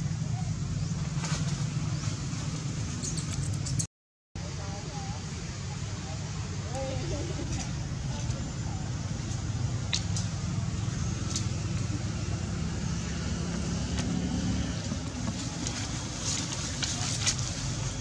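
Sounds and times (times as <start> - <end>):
motor vehicle engine rumbling: 0.0 - 18.0.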